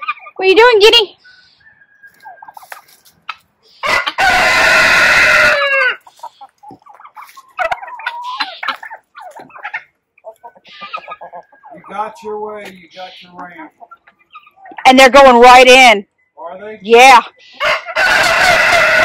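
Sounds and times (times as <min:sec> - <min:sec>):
hens clucking: 0:00.0 - 0:19.0
rooster crowing: 0:03.8 - 0:06.1, 0:17.6 - 0:19.0.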